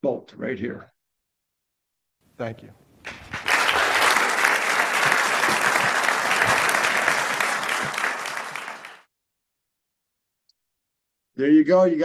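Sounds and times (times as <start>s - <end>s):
audience clapping loudly: 3.1s - 9.1s.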